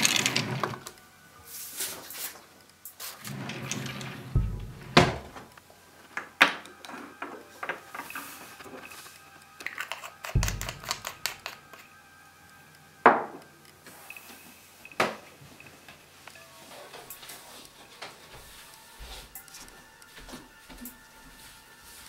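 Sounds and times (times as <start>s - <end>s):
faint music: 0.0s - 22.0s
dull thump: 4.4s - 5.5s, 10.4s - 11.0s
manual typewriter clicking: 9.7s - 11.8s.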